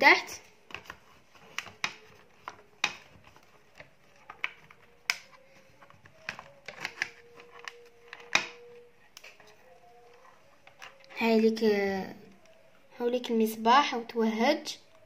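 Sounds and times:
wooden board clicks and knocks: 0.7s - 8.7s.

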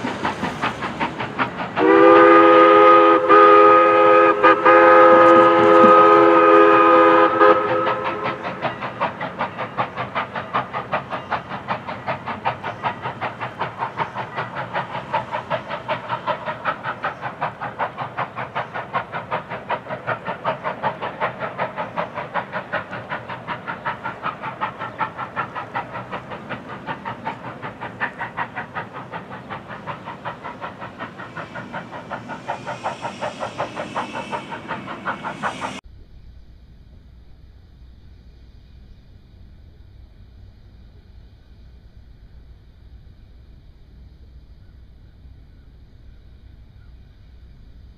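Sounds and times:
steam train clattering past: 0.0s - 35.8s
steam locomotive whistle: 1.8s - 9.0s.

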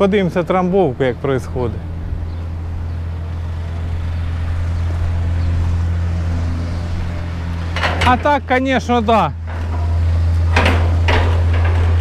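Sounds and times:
plate compactor running: 9.4s - 12.0s.

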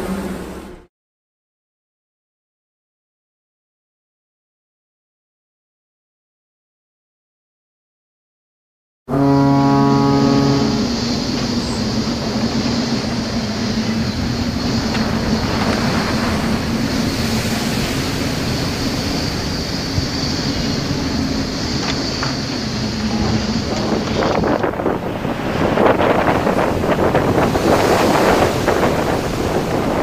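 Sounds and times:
waves breaking: 9.1s - 30.0s
wind rushing: 10.4s - 30.0s
wind buffeting the microphone: 10.6s - 30.0s.

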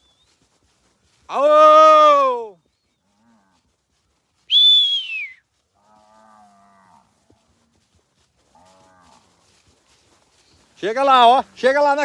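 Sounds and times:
whistle sliding down in pitch: 4.5s - 5.4s
cattle lowing faintly: 5.5s - 10.8s.

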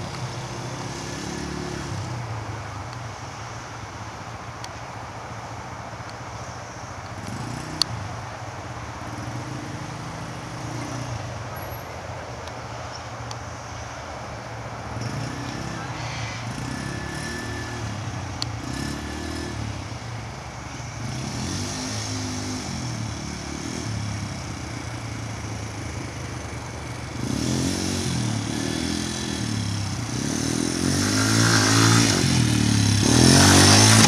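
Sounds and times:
quad bike engine running: 14.9s - 34.0s.

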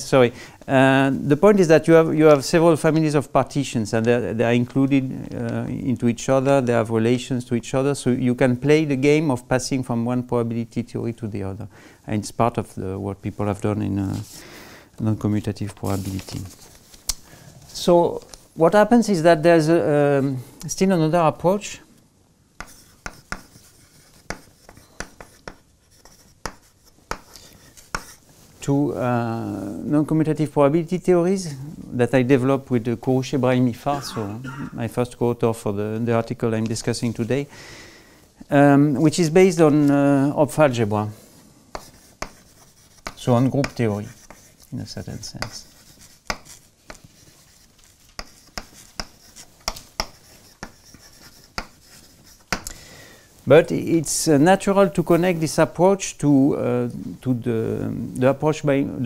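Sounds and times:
chalk tapping on blackboard: 22.6s - 28.2s, 41.7s - 52.7s
chalk scratching: 22.6s - 28.4s, 41.7s - 52.6s.

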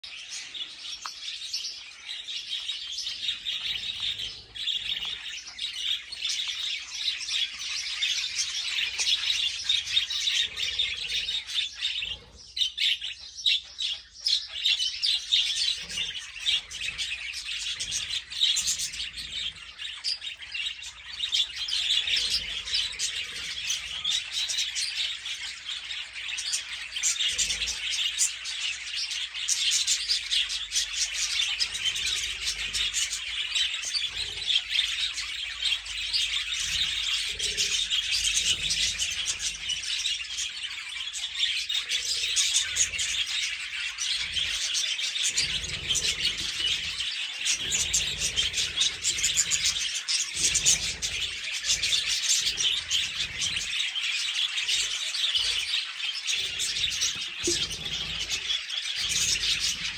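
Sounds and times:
budgerigars chattering: 0.0s - 59.9s.

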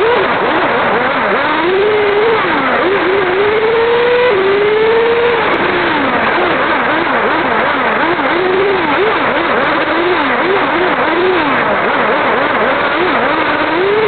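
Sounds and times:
heavy rushing noise: 0.0s - 10.7s
model car motor whining: 0.0s - 14.0s.

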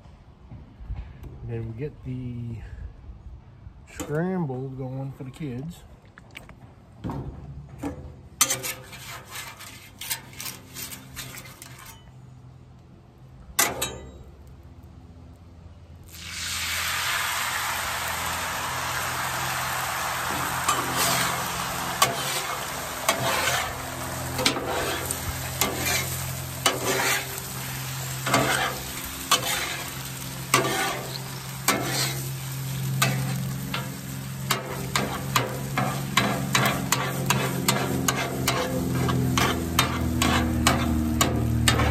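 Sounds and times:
metal spatula scraping griddle: 8.4s - 12.3s, 20.1s - 41.9s
eggs sizzling: 16.1s - 41.9s.

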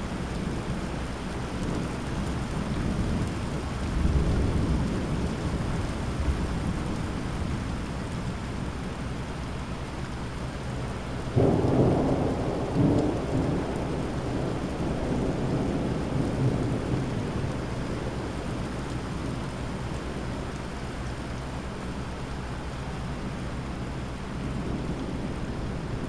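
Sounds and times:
steady rain: 0.0s - 26.0s
thunderclap rumbling: 11.4s - 18.6s.

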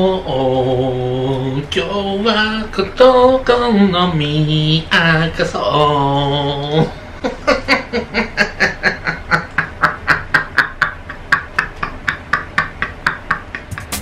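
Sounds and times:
man giggling: 6.8s - 14.0s.

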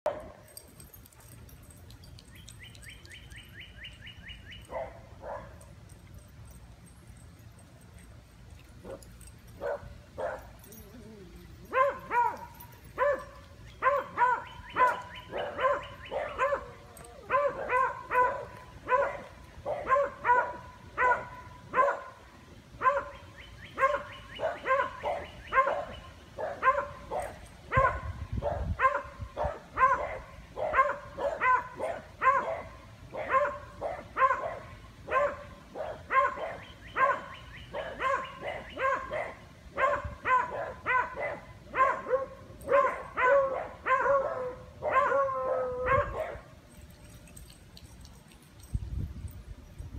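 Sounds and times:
dogs barking high-pitched: 0.0s - 0.6s, 4.6s - 5.8s, 8.8s - 22.2s, 22.8s - 46.6s.

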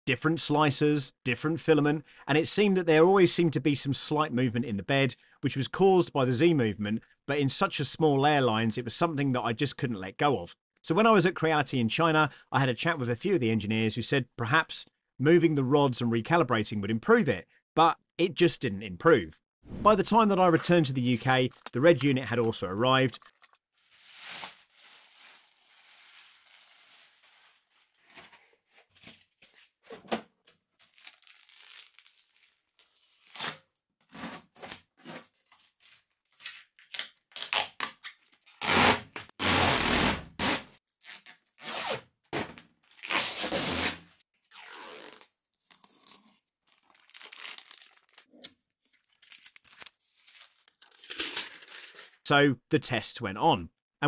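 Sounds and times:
plastic packaging crinkling: 21.0s - 29.6s, 30.8s - 33.4s, 45.6s - 52.0s
protective film tearing: 21.1s - 24.8s.

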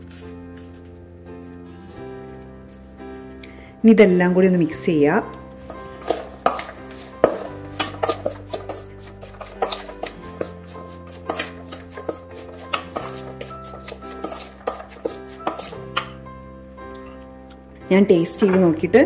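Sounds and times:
soft background music: 0.0s - 19.0s
spoon scraping metal bowl: 5.5s - 16.2s.

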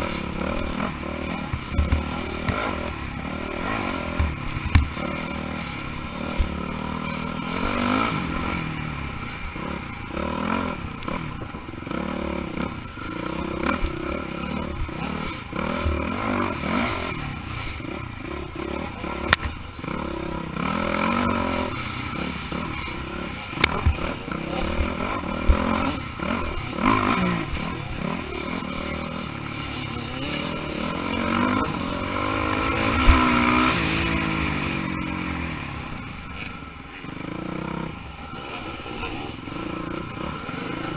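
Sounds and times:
dirt bike engine revving: 0.0s - 40.9s
bike knocks and clatter: 1.5s - 2.7s, 4.1s - 5.0s.

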